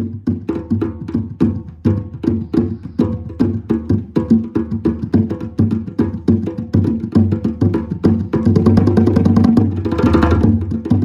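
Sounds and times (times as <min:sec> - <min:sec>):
hand drums playing: 0:00.0 - 0:11.0.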